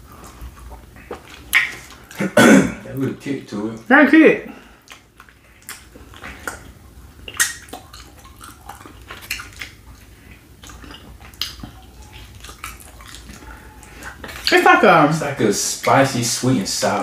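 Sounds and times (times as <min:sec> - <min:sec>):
wet mouth sounds of eating: 0:00.0 - 0:03.0, 0:04.8 - 0:14.6.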